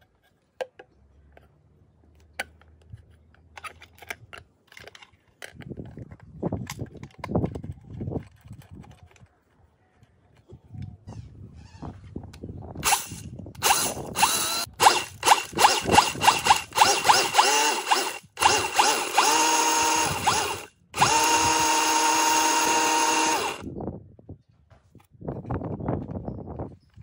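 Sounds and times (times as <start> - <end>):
grinder motor whirring: 12.8 - 23.7
corn kernels grinding in pot: 12.9 - 23.6.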